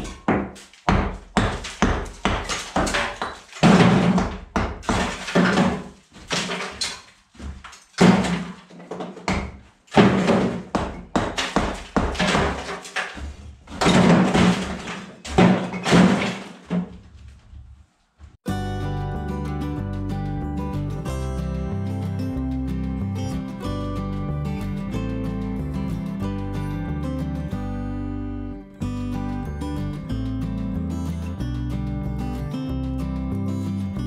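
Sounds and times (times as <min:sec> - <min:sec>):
hammer striking masonry: 0:00.0 - 0:16.7
guitar music: 0:18.4 - 0:34.0.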